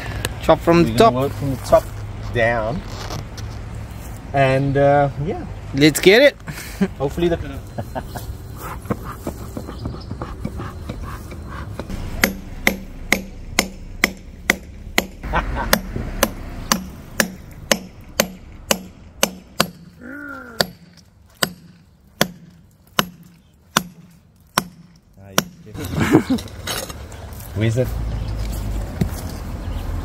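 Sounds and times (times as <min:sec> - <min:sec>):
hammer striking steel chisel: 0:10.5 - 0:20.0, 0:20.6 - 0:25.6.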